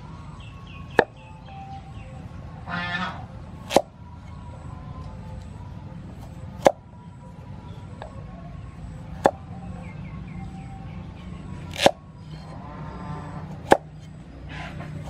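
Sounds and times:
cleaver chopping on wooden board: 3.6s - 3.9s, 11.7s - 12.0s.

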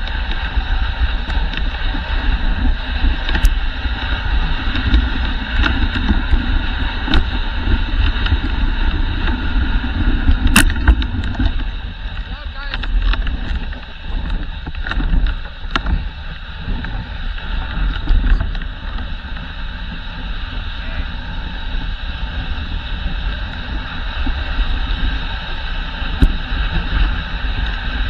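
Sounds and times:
sled runners hissing on snow: 0.0s - 28.0s
wind rumble on microphone: 0.0s - 28.0s.

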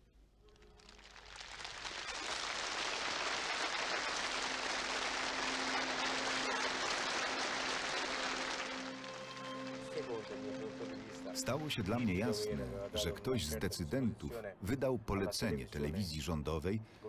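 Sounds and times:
large crowd applauding: 0.6s - 13.2s.

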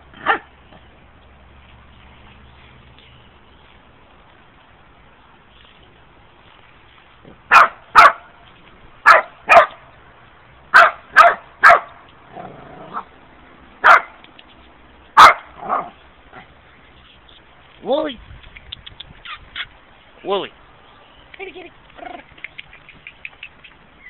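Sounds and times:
dog barking: 0.2s - 0.5s, 7.5s - 8.3s, 9.0s - 9.8s, 10.7s - 12.0s, 13.8s - 14.2s, 15.2s - 16.0s.

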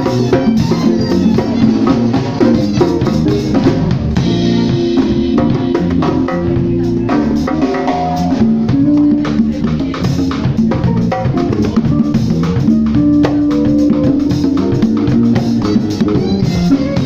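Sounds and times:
congas struck by hand: 0.0s - 17.0s
drum kit with cymbals: 0.0s - 17.0s
electric bass low notes: 0.0s - 17.0s.

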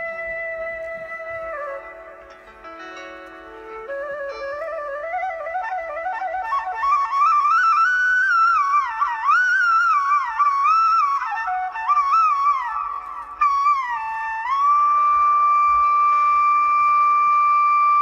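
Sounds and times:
instrumental melody with slides: 0.0s - 7.4s.

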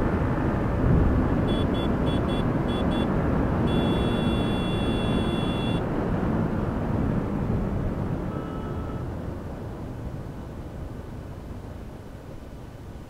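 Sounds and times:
wind over microphone: 0.0s - 1.5s
long beep: 1.5s - 3.1s, 3.7s - 5.8s, 8.3s - 9.1s
short beeps: 1.5s - 3.1s, 3.7s - 5.8s, 8.3s - 9.1s.

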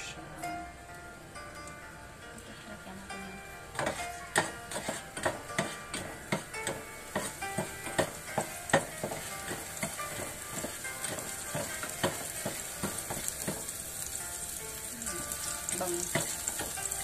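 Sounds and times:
food sizzling in oil: 3.0s - 17.0s
spatula scraping and tapping pan: 3.7s - 13.8s, 15.3s - 17.0s.

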